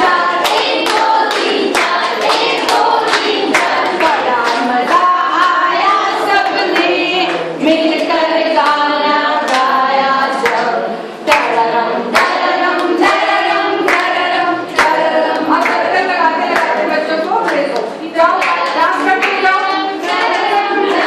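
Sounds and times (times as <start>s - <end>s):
women singing together: 0.0s - 21.0s
sharp hand claps: 0.3s - 5.1s, 11.3s - 13.2s, 13.8s - 15.9s, 17.4s - 21.0s.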